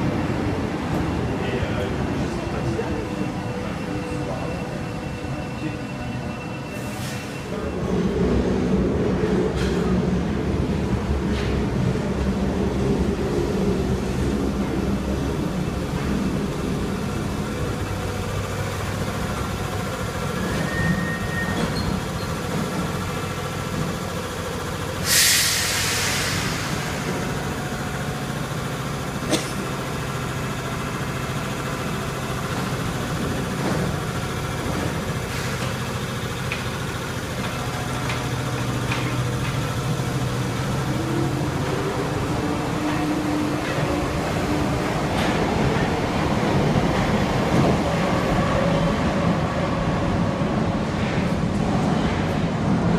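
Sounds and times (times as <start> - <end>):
train rumbling and braking: 0.0 - 52.9
loud hiss of air: 25.0 - 27.4.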